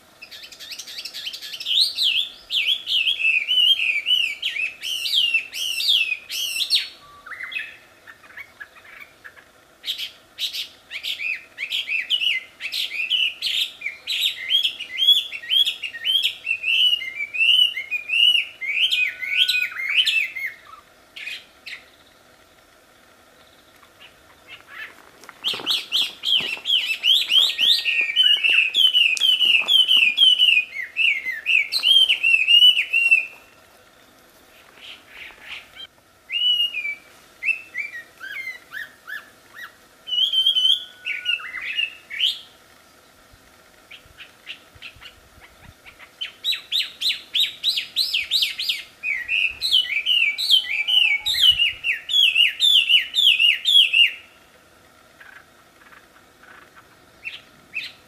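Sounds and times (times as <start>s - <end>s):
bird singing whistled notes: 0.2s - 9.1s, 9.8s - 22.1s, 24.5s - 33.4s, 35.2s - 42.5s, 46.0s - 54.4s.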